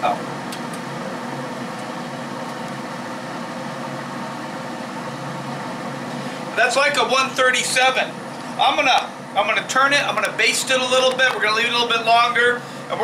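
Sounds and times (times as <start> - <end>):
pellet smoker fan humming: 0.0 - 13.0.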